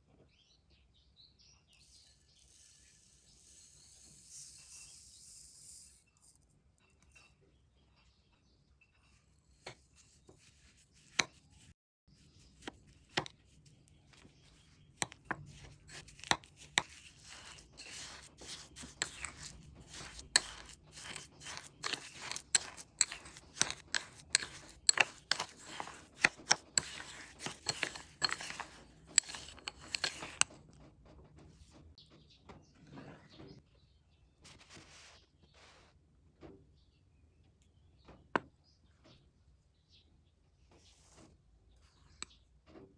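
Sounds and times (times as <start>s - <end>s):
wooden spoon scraping glass bowl: 14.1s - 30.5s
spoon tapping: 15.9s - 30.4s.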